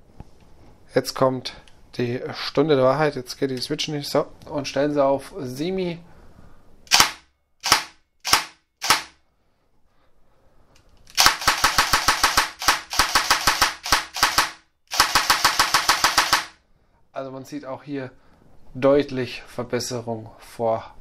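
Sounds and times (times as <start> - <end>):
airsoft gearbox dry-firing: 6.9 - 9.2, 11.1 - 16.6.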